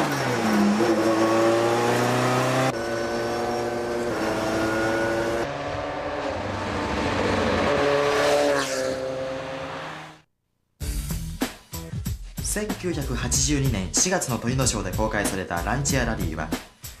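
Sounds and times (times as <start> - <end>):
car engine revving: 0.0 - 10.3.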